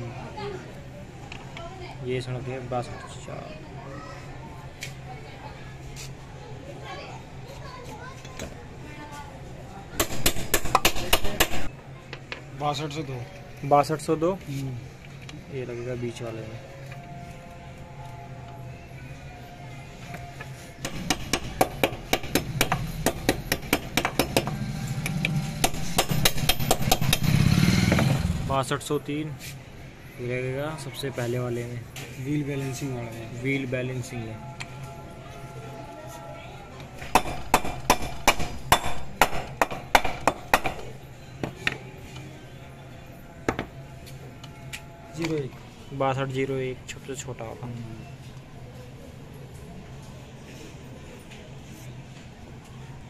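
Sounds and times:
sharp metallic knocks: 20.8 - 24.6, 25.6 - 28.1, 37.1 - 40.9.

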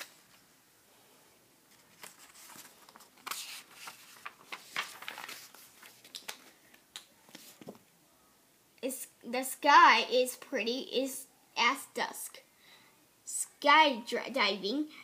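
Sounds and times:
paper page rustling: 1.7 - 7.8.

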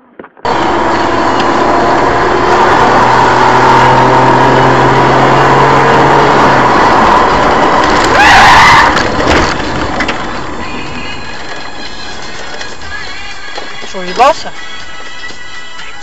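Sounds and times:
car road and engine noise: 0.0 - 16.0
brief loud squeal: 8.1 - 9.1.

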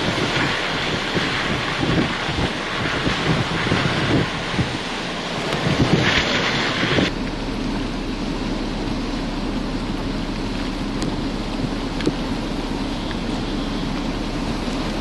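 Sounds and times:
strong wind gusts: 0.0 - 8.2
rain: 0.0 - 15.0.

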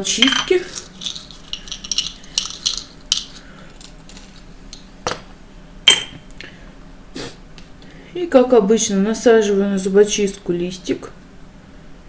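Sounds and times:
toothpicks rattling on a tabletop: 0.2 - 4.4.

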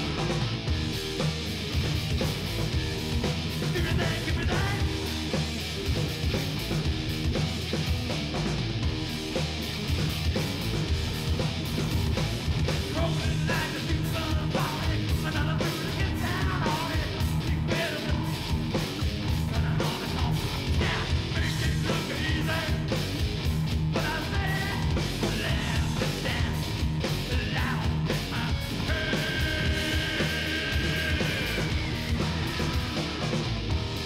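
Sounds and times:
bass guitar: 0.0 - 34.0
distorted electric guitar: 0.0 - 34.0
drums: 0.0 - 34.0
man yelling vocals: 3.7 - 5.0, 19.5 - 22.9, 24.0 - 32.5.

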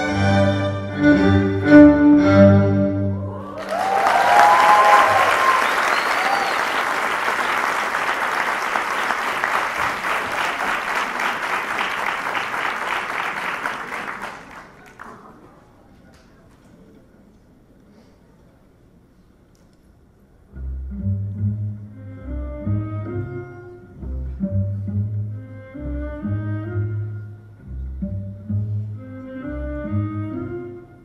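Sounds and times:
string ensemble playing: 0.0 - 3.4, 20.6 - 31.0
shouts from audience: 3.2 - 6.9
audience applauding: 3.3 - 15.5.

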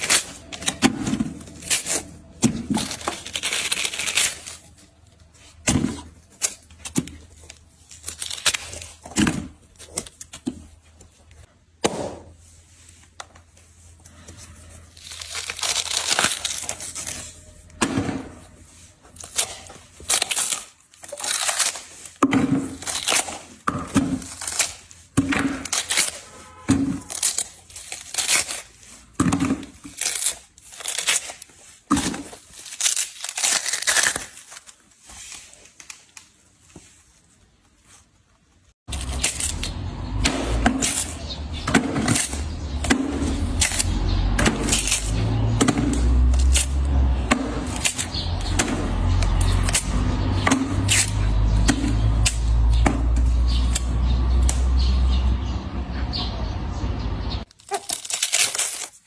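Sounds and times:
watermelon cracking and tearing: 0.0 - 11.1, 14.1 - 36.4, 38.9 - 54.8, 57.4 - 59.0.

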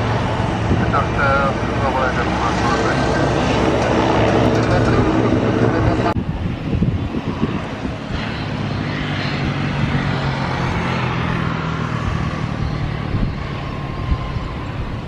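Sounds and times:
jet taxiing rumble and whine: 0.0 - 15.0.

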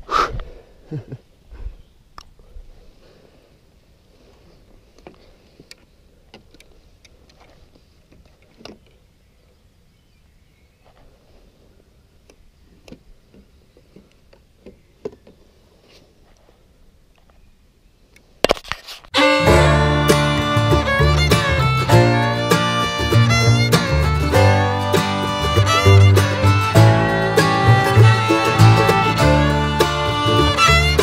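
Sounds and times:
quiet outdoor ambience: 0.0 - 25.5
fiddle and guitar music: 19.2 - 31.0.

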